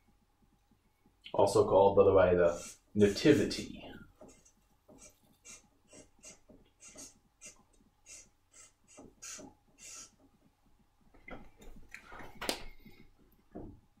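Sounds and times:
marker scratching on paper: 0:04.2 - 0:10.2.

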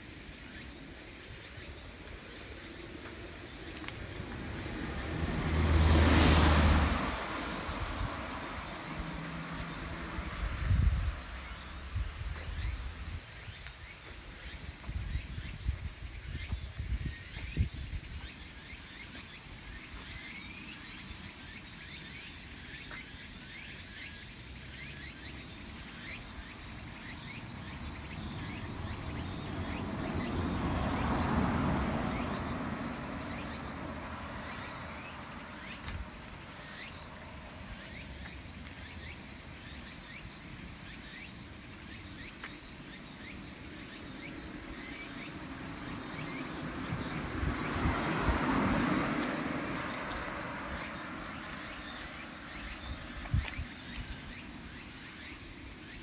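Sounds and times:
high-pitched insect hum: 0:00.0 - 0:56.0
car passing: 0:01.4 - 0:12.8, 0:24.4 - 0:56.0.

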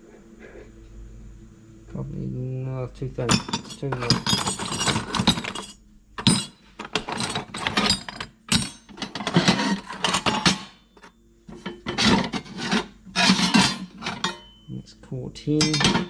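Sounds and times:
scrap metal clanking and scraping: 0:03.2 - 0:14.7, 0:15.6 - 0:16.0.

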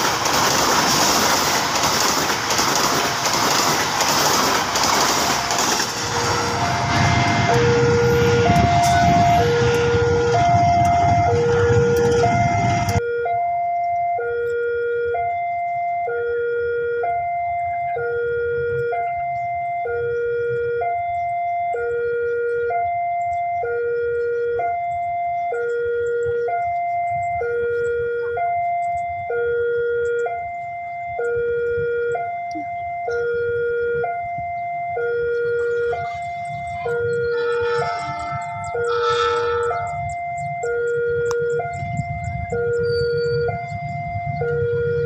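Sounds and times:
train passing: 0:00.0 - 0:13.0, 0:35.5 - 0:45.0
two-tone crossing alarm: 0:04.4 - 0:45.0.

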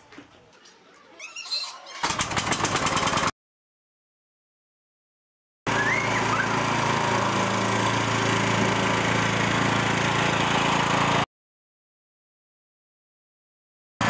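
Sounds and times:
lawn mower engine running: 0:02.0 - 0:03.3, 0:05.7 - 0:11.3.

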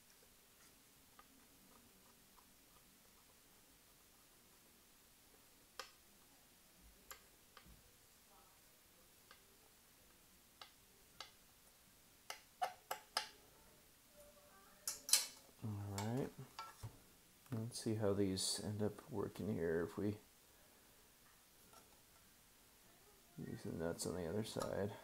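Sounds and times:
screwdriver clicking on metal parts: 0:14.9 - 0:15.4.

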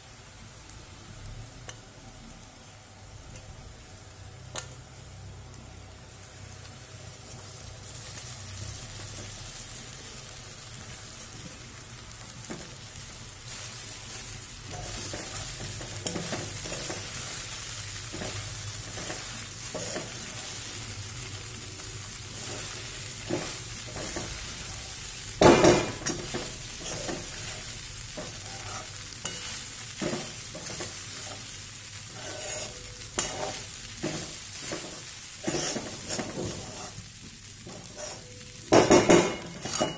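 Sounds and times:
food sizzling in a pan: 0:00.0 - 0:39.9
spoon scraping and clinking on pan: 0:28.2 - 0:31.5, 0:32.1 - 0:37.0, 0:37.7 - 0:39.9.

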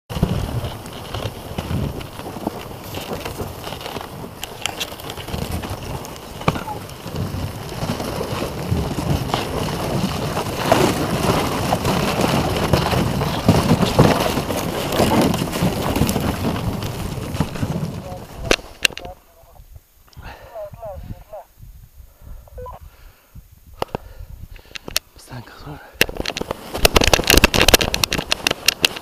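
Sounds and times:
wooden sled scraping over snow: 0:00.1 - 0:19.2, 0:25.4 - 0:29.0
wind buffeting microphone: 0:00.1 - 0:25.0.

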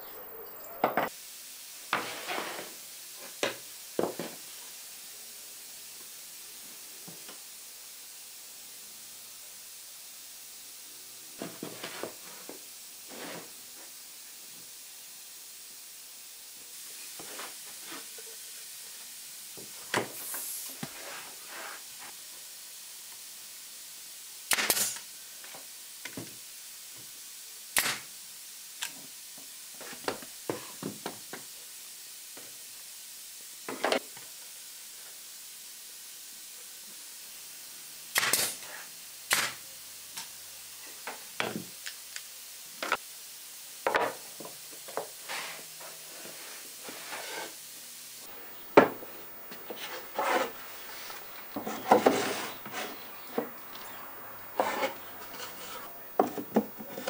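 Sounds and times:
air hiss: 0:00.0 - 0:26.8, 0:45.2 - 0:57.0
nail gun firing: 0:38.2 - 0:38.5
wooden parts knocking: 0:48.3 - 0:57.0.

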